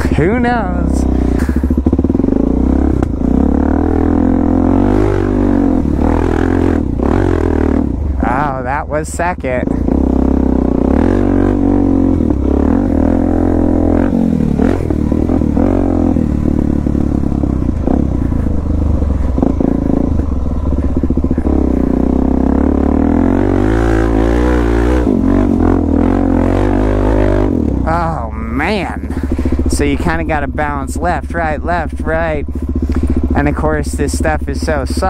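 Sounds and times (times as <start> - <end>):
motorcycle engine revving: 0.0 - 35.0
motorcycle knocking and clattering: 14.2 - 21.7.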